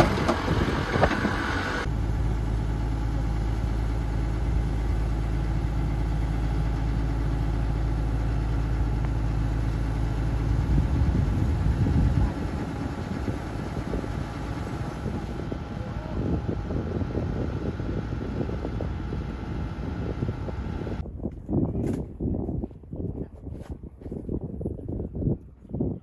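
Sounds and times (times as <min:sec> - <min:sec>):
combine harvester engine running: 0:00.0 - 0:21.0
tractor idling: 0:00.0 - 0:21.0
voices: 0:11.6 - 0:18.2.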